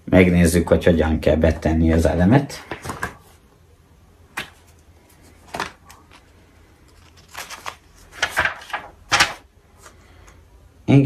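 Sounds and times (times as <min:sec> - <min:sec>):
paper pages rustling: 0:04.4 - 0:10.0.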